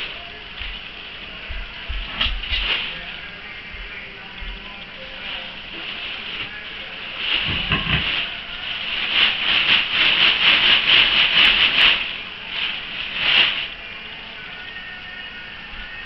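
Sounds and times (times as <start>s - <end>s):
plastic bags crinkling: 4.6s - 14.9s.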